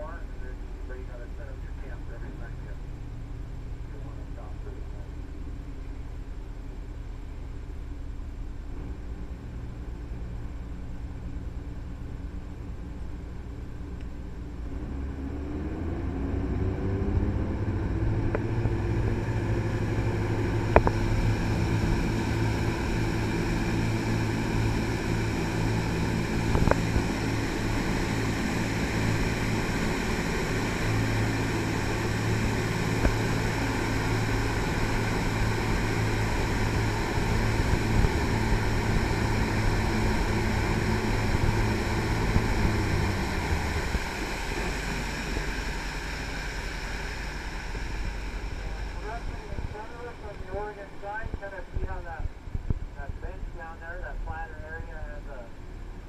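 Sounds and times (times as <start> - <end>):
boat engine hum: 0.0 - 56.0
wind noise: 16.2 - 50.2.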